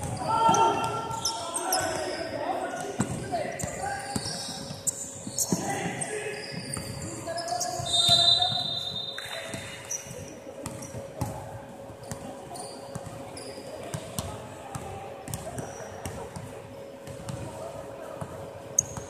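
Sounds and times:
sneakers squeaking on floor: 0:00.0 - 0:11.4, 0:12.0 - 0:16.3, 0:18.8 - 0:19.0.

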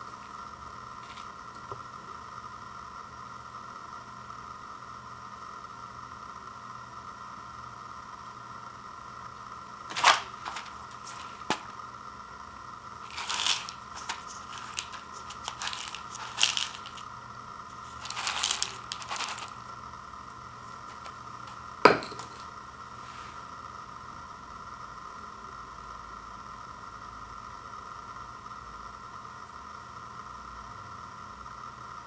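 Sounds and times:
faint hum: 0:00.0 - 0:32.0
cup and bowl rustling: 0:01.0 - 0:01.4, 0:09.9 - 0:11.8, 0:13.0 - 0:17.1, 0:17.7 - 0:19.7, 0:20.6 - 0:22.5.

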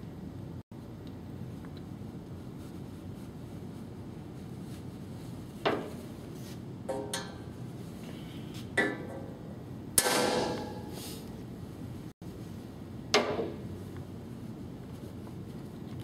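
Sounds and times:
hammer striking metal punch: 0:10.0 - 0:10.9.

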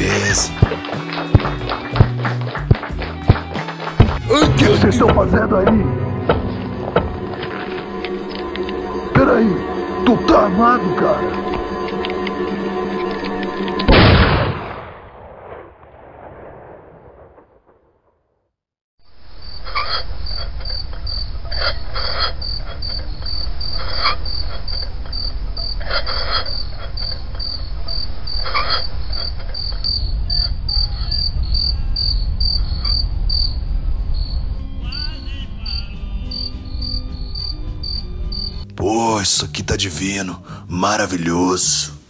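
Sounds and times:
crickets chirping: 0:19.0 - 0:38.7.

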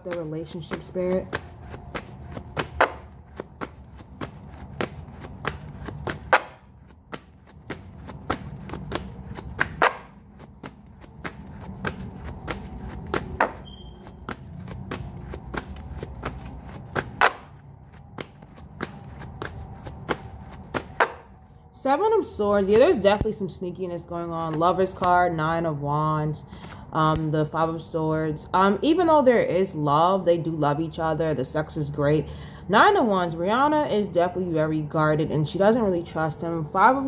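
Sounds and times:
cards being shuffled: 0:00.1 - 0:21.4.

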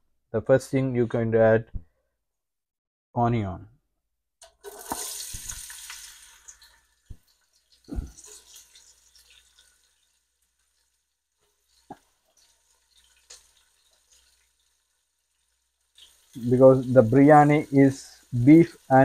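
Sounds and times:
onion frying in oil: 0:04.5 - 0:19.0.

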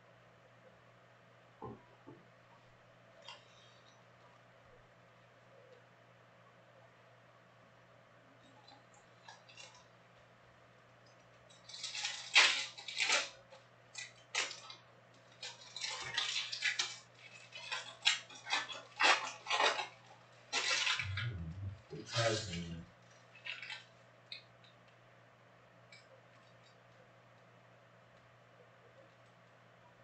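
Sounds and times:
foil wrappers crinkling: 0:11.5 - 0:21.2, 0:23.2 - 0:23.9.

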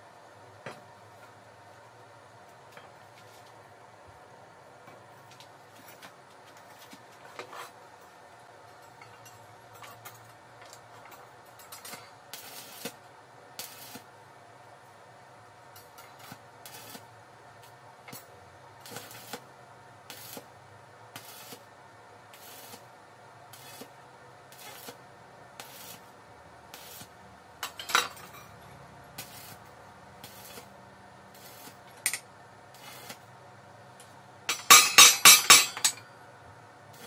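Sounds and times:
welding arc crackling: 0:11.6 - 0:14.2, 0:15.8 - 0:21.7, 0:22.3 - 0:22.9, 0:23.5 - 0:27.2, 0:29.2 - 0:33.3.

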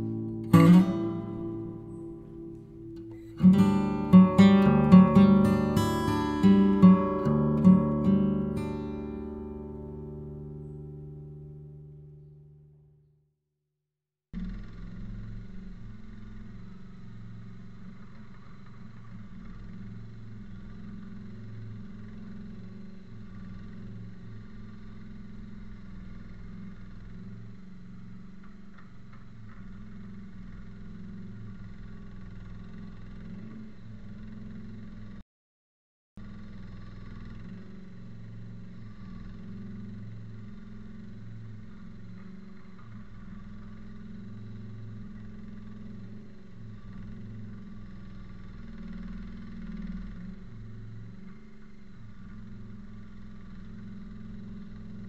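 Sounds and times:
loader engine running: 0:00.0 - 0:12.4, 0:36.2 - 0:55.0.

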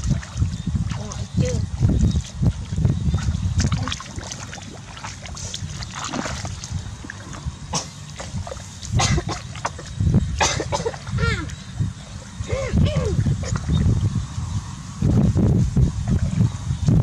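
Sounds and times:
feet splashing through mud: 0:00.0 - 0:11.6.

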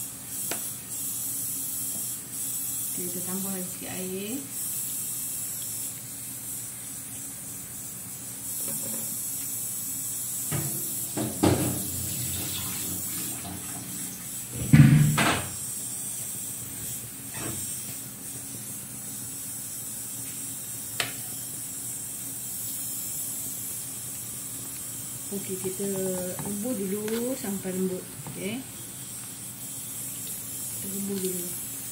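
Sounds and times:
broth hissing in pan: 0:00.0 - 0:31.9
knocks and thumps: 0:14.6 - 0:15.5.

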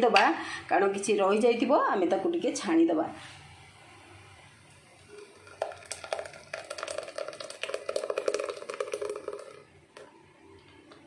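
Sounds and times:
juice glugging and splashing: 0:05.1 - 0:09.7.

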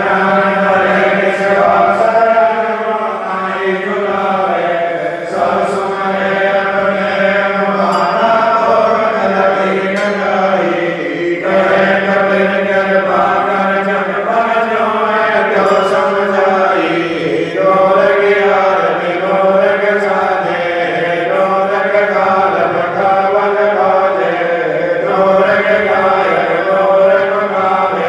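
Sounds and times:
voices chanting melodically: 0:00.0 - 0:28.0.

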